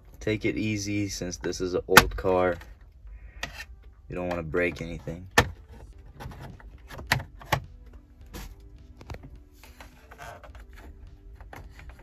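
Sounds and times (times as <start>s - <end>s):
background music: 0.0s - 12.0s
pry tool scraping: 3.2s - 4.4s.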